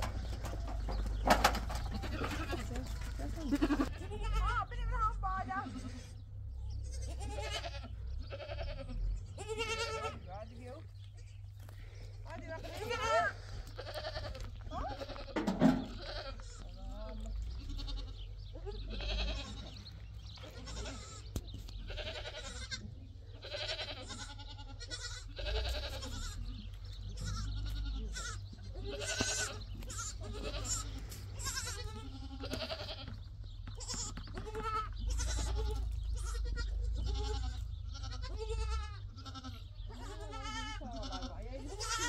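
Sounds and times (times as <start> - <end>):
goats bleating: 0.0 - 42.0.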